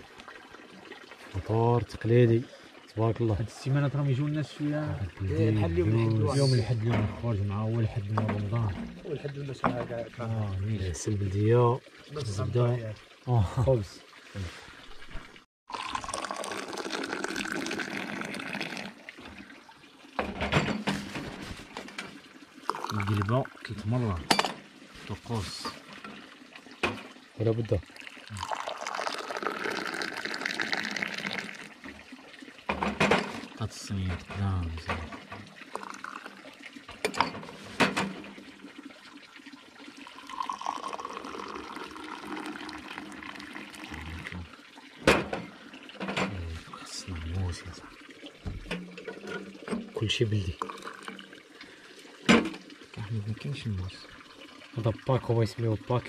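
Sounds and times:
tea pouring into a glass: 15.7 - 19.6, 22.3 - 26.4, 27.3 - 32.5, 33.3 - 37.3, 38.6 - 48.5, 49.5 - 56.0
short thump: 48.4 - 48.8.

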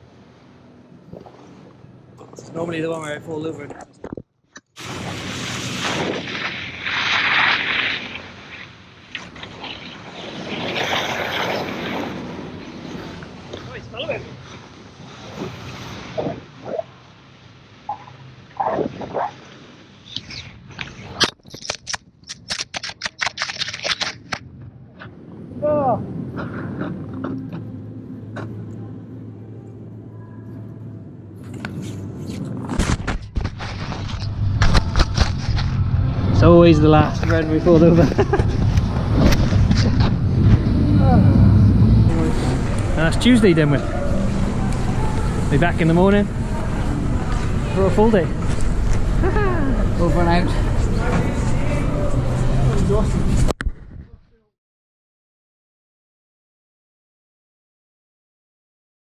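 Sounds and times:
muffled camera rumble and rustling: 3.5 - 12.3, 31.4 - 36.4, 37.0 - 43.1
snowboard scraping snow: 9.4 - 12.5.

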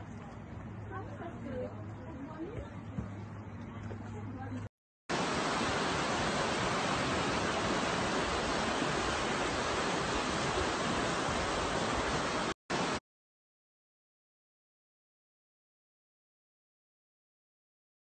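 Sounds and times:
river rushing over rapids: 5.1 - 13.0.

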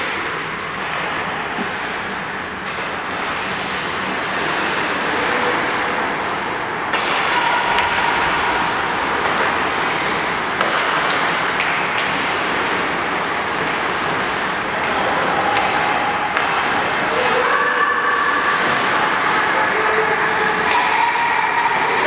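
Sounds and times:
stick and puck clacks: 0.0 - 2.0, 2.6 - 17.4, 20.3 - 22.0
skates scraping on ice: 3.1 - 17.4.

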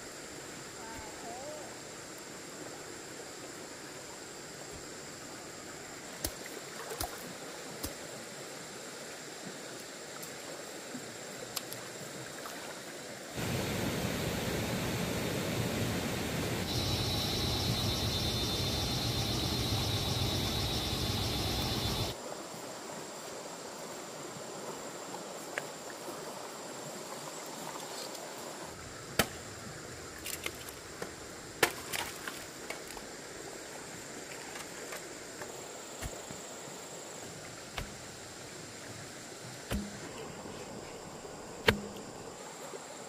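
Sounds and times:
high insect trill: 0.0 - 43.0
insect drone: 0.0 - 43.0
rushing water: 0.0 - 43.0
sharp knocks: 39.7 - 40.1.

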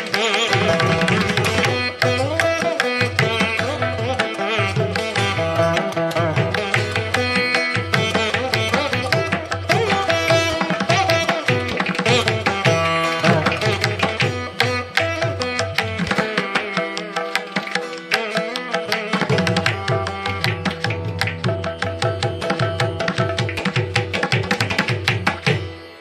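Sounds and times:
plucked string melody: 0.0 - 26.0
tabla drumming: 0.0 - 26.0.

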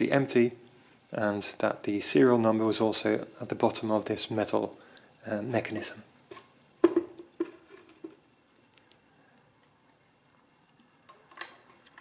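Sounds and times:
machine knocking on stone floor: 6.8 - 8.2.

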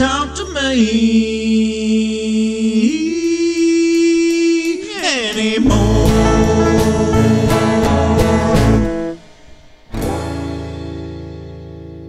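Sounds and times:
guitar and bass playing: 5.6 - 12.0.

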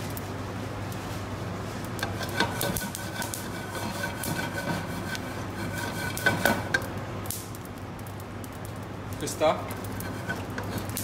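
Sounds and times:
wooden spatula scraping nuts in pan: 2.0 - 6.9, 9.9 - 11.0.

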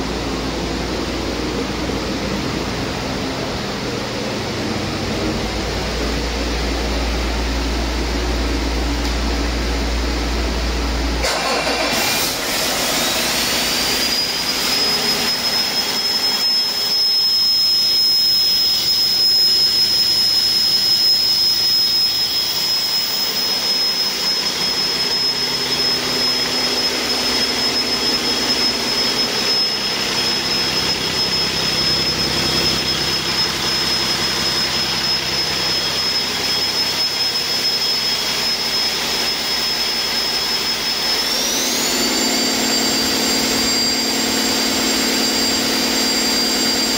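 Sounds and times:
diesel engine running: 0.0 - 46.9
high-pitched whine: 0.0 - 46.9.

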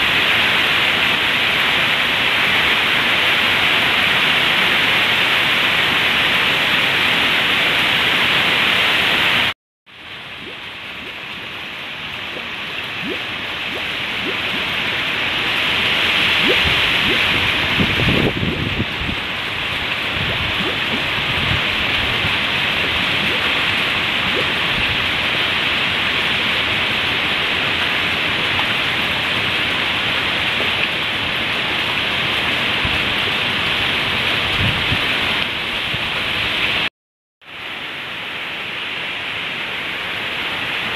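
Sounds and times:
heavy rain on lawn and trees: 0.0 - 40.9.

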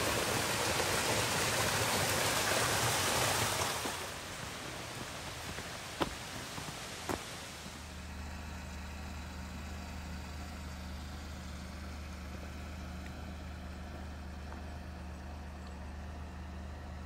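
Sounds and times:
car engine running: 3.4 - 17.0.

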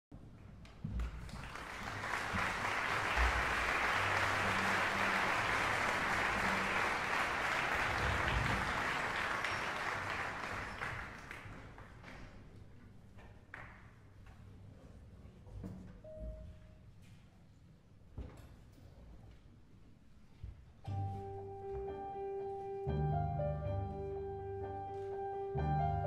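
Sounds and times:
audience applauding: 1.0 - 12.3.

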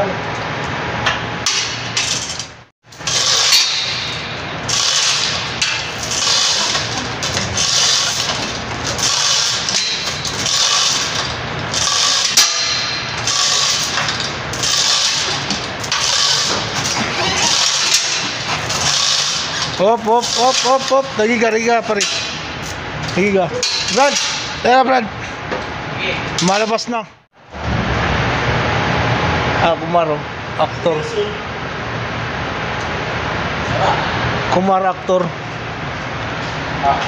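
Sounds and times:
hoist chains rattling: 1.5 - 22.5.

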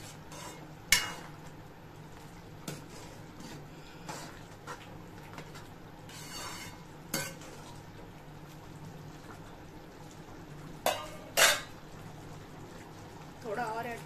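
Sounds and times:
spoon scraping pan: 0.0 - 1.4, 2.6 - 7.7, 10.9 - 11.7
metal spoon clanking on pan: 0.3 - 1.3, 6.1 - 7.5, 10.8 - 11.7.

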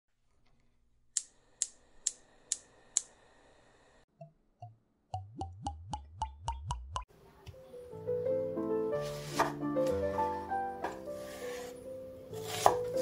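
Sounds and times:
gas burner igniter clicking: 1.1 - 3.2
gas hissing: 1.2 - 4.1
short rising bloops: 4.2 - 7.1.

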